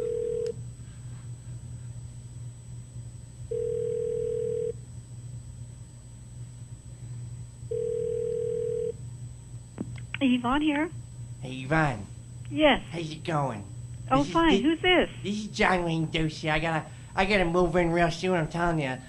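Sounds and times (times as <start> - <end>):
low line hum: 8.7 - 19.0.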